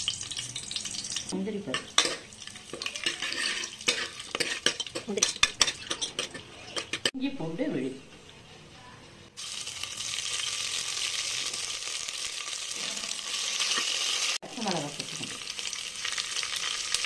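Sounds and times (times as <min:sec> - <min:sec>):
paste sizzling in hot oil: 0:00.0 - 0:07.0, 0:09.4 - 0:17.0
steel ladle stirring: 0:01.7 - 0:07.2.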